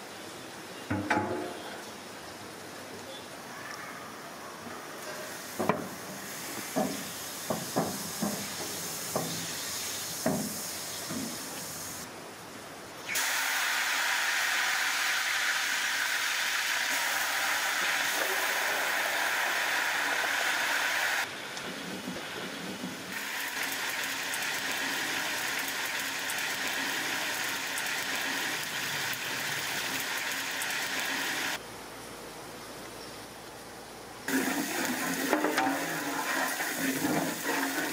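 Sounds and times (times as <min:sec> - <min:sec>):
vegetables sizzling in hot oil: 0:05.0 - 0:12.1, 0:13.0 - 0:21.3, 0:22.2 - 0:31.6, 0:34.3 - 0:37.9.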